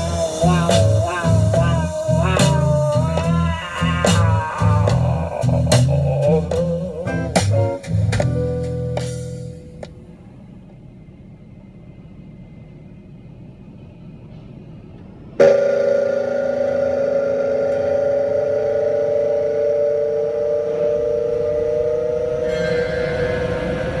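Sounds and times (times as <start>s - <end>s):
air dryer blowers humming: 0.0s - 10.2s, 15.4s - 24.0s
faint low rumble: 0.0s - 24.0s.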